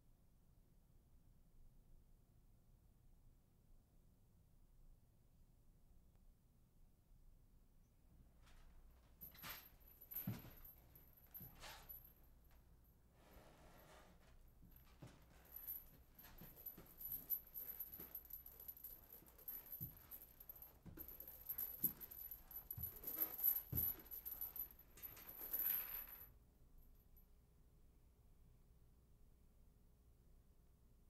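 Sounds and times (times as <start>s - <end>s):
metallic jingling: 15.4s - 26.2s
footsteps on wooden stairs: 21.8s - 24.6s.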